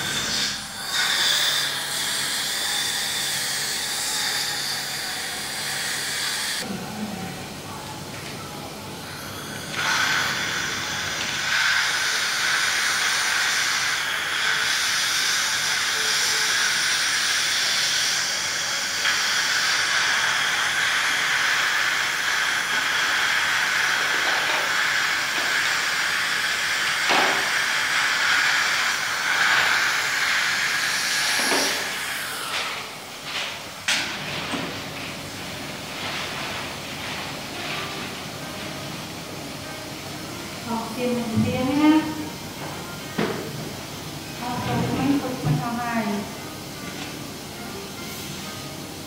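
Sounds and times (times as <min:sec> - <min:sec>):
dental suction hissing: 0:00.0 - 0:06.7, 0:09.2 - 0:32.9.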